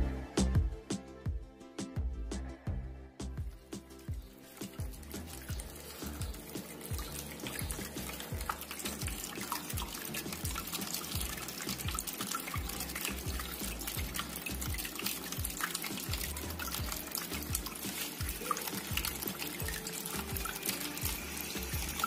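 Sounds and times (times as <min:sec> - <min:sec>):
background music with a beat: 0:00.0 - 0:22.0
water trickling and splashing: 0:03.4 - 0:22.0.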